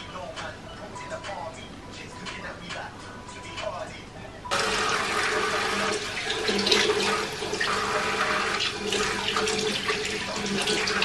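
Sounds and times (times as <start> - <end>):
tap running into washbasin: 4.5 - 11.0.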